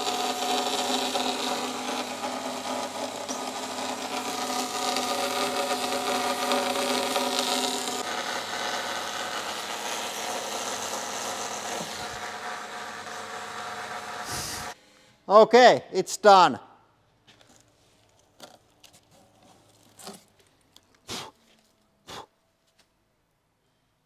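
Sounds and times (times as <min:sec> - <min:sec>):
band saw cutting plastic: 0:00.0 - 0:14.8.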